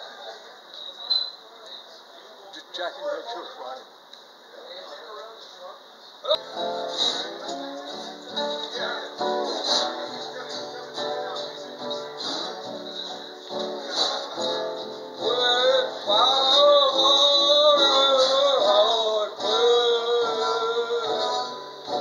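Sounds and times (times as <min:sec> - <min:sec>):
strummed acoustic guitar: 0:06.4 - 0:22.0
man singing: 0:15.2 - 0:21.6.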